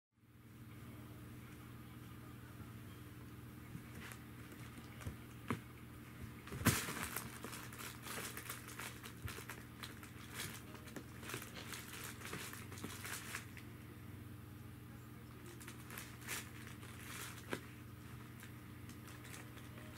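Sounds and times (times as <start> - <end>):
kitten scratching: 15.5 - 19.7.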